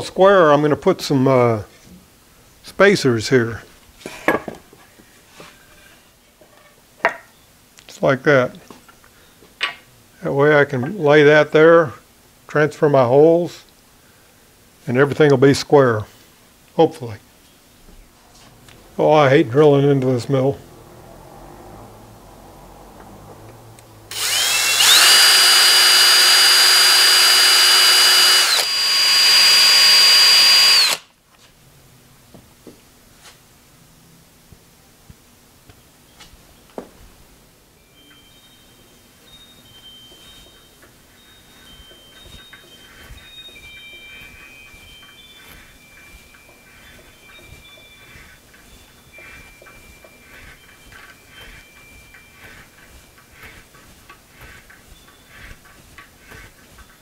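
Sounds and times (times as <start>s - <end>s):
cordless drill whining: 24.1s - 31.1s, 39.3s - 57.0s
hand tool squealing on metal: 37.8s - 57.0s.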